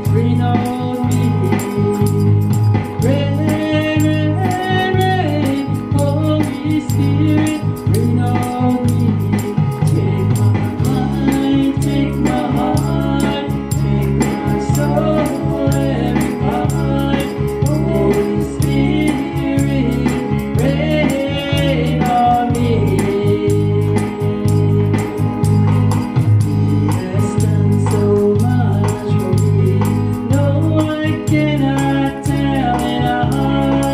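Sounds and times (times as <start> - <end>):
band accompaniment: 0.0 - 33.9
bass line: 0.0 - 33.9
rattling percussion beat: 0.0 - 33.9
woman singing gospel song: 9.9 - 25.0.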